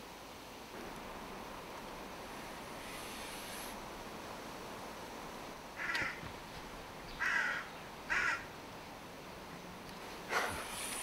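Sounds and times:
crow cawing: 0:05.8 - 0:06.2, 0:07.2 - 0:08.5.

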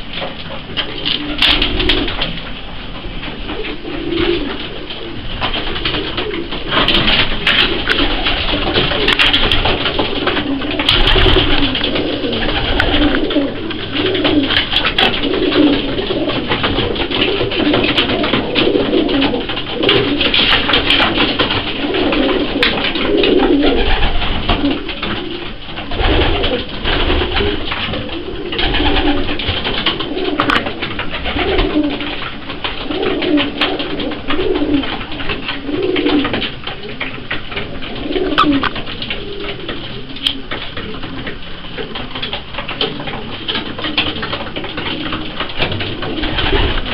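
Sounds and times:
pigeons cooing: 0:00.0 - 0:46.9
pigeons pecking on wooden trough: 0:00.0 - 0:46.9.

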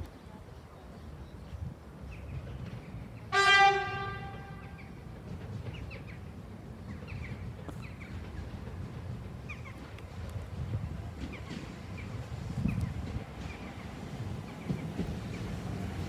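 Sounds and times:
train horn blast: 0:03.3 - 0:04.8.

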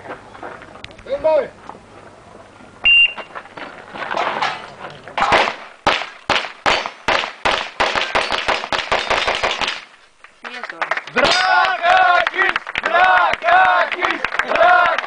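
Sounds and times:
shot timer beep: 0:02.8 - 0:03.3
rapid pistol shots: 0:05.3 - 0:09.9.

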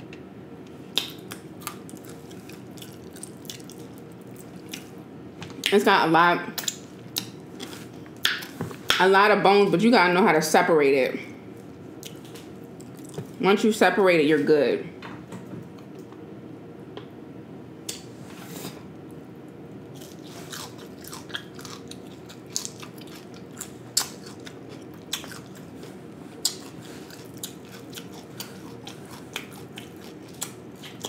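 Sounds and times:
low steady hum: 0:00.0 - 0:31.0
crunching while chewing: 0:00.8 - 0:05.0, 0:11.6 - 0:13.4, 0:19.9 - 0:31.0.

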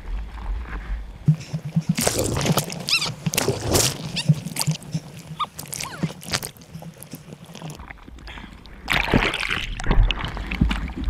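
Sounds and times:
whitewater splashing: 0:01.8 - 0:07.8
short squeaky chirps: 0:02.8 - 0:03.2.

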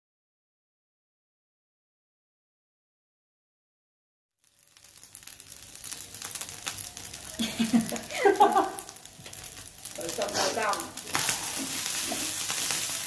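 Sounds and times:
rice sizzling in a frying pan: 0:04.4 - 0:13.0.

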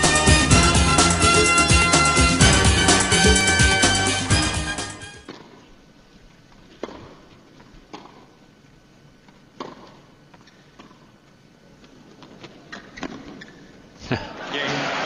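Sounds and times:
tennis racquets hitting ball: 0:05.2 - 0:05.6, 0:06.7 - 0:07.3, 0:07.9 - 0:08.3, 0:09.6 - 0:11.1.

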